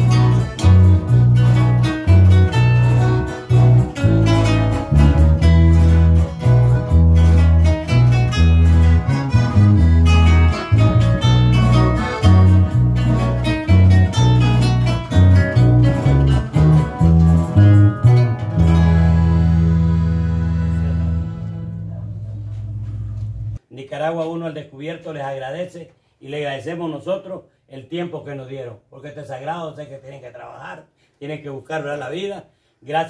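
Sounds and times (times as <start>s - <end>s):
accordion: 0.0s - 23.6s
electric bass notes: 0.0s - 23.6s
strummed acoustic guitars: 0.0s - 23.6s.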